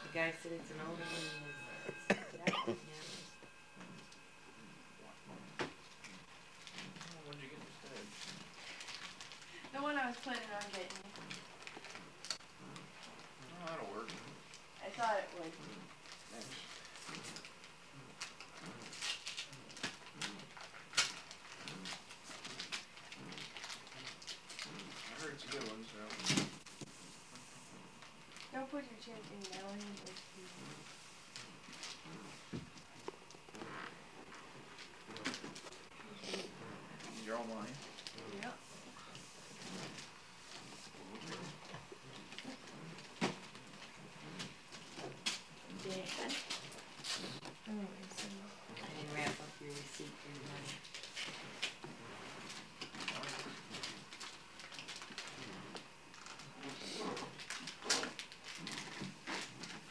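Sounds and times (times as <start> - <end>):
gift boxes knocking and rustling: 18.2 - 26.9.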